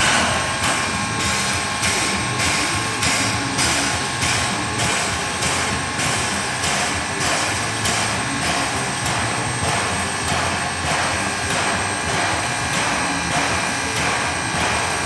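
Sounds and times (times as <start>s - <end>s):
continuous steam hiss: 0.0s - 15.0s
steam locomotive puffs: 0.0s - 15.0s.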